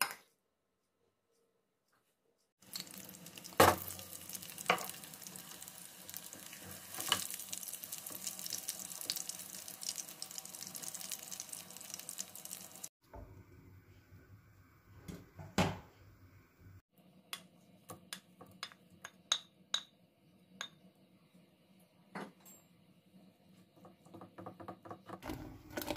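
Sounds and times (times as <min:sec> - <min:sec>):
garlic and butter sizzling in oil: 0:02.6 - 0:12.9.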